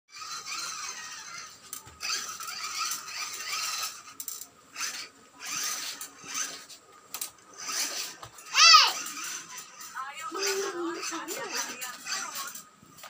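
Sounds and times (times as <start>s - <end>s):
toy motorcycle motor whirring: 0.1s - 13.0s.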